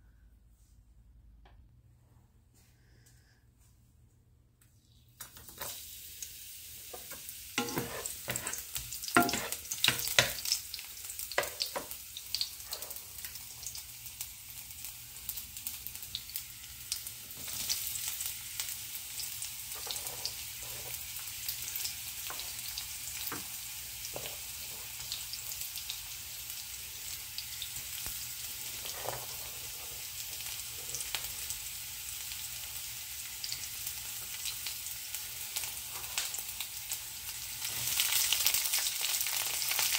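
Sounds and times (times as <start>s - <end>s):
food sizzling in oil: 5.3s - 39.9s
oil crackling and popping: 7.0s - 20.4s, 33.4s - 39.9s.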